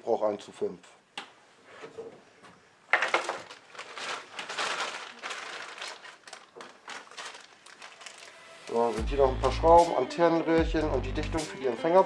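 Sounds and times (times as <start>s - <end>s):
plastic packaging crinkling: 2.9s - 9.0s.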